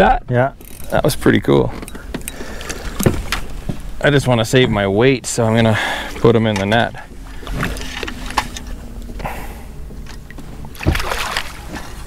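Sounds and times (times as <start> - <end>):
steady low hum: 0.4 - 12.0
water splashing: 7.0 - 12.0.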